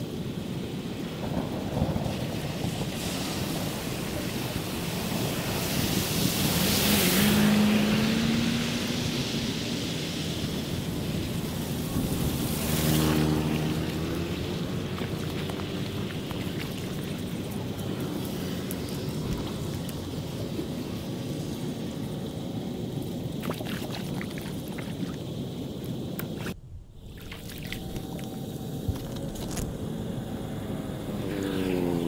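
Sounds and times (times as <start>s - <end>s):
wind: 0.0s - 32.0s
motorbike engine passing: 6.4s - 20.2s, 27.8s - 32.0s.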